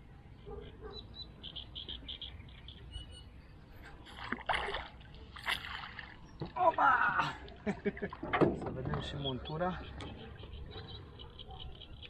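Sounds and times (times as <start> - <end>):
water splashing against a boat: 3.8 - 9.2.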